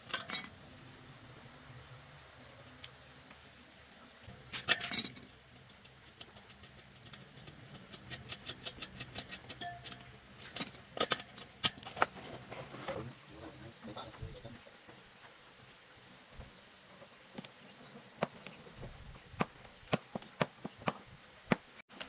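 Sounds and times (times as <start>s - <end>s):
metal tools clinking: 0.0s - 0.6s, 4.5s - 5.3s, 9.6s - 11.3s
clicks and rubbing of tyre: 5.5s - 10.0s.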